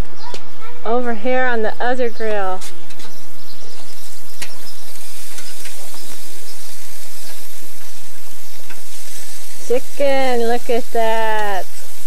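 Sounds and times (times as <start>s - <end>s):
chicken sizzling on a grill: 2.9s - 12.0s.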